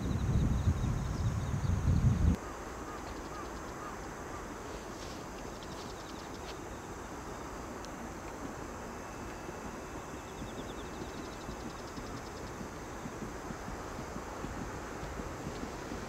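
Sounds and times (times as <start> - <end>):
faint bird chirps: 0.0 - 4.4.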